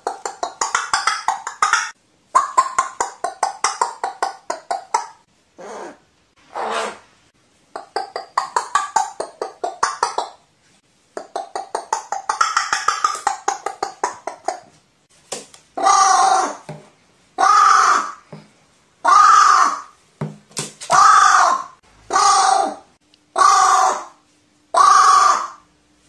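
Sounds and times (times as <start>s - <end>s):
crow calling: 17.4s - 18.2s, 19.0s - 19.9s, 20.9s - 22.8s, 23.4s - 25.6s.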